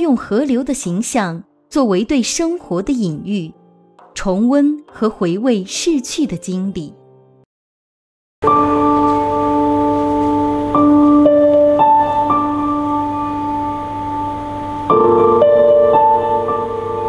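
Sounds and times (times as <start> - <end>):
slow piano chords: 2.9 - 7.4, 8.4 - 17.0.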